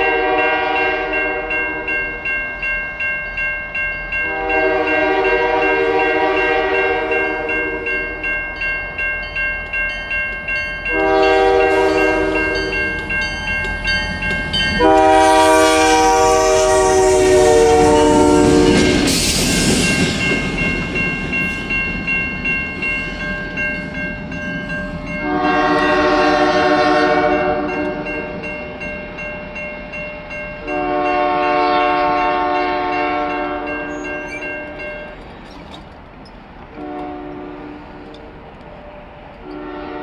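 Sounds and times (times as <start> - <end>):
locomotive air horn blasts: 0.0 - 1.9, 4.2 - 7.9, 10.9 - 13.0, 14.8 - 19.0, 25.2 - 28.1, 30.6 - 34.0, 36.8 - 38.0, 39.5 - 40.0
passing locomotive rumble: 0.0 - 40.0.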